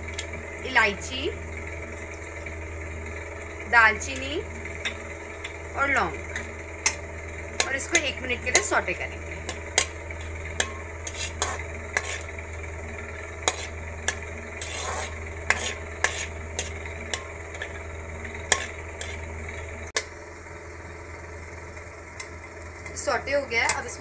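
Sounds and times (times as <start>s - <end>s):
steady low hum: 0.0s - 24.0s
spices sizzling in oil: 1.4s - 19.8s
metal spatula scraping and tapping pan: 9.4s - 12.4s, 13.0s - 19.7s.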